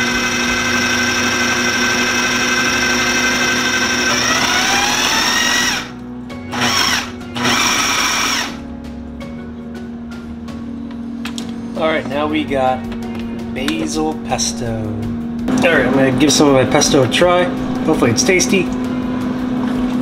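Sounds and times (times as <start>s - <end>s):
food processor motor whining: 0.0s - 8.6s.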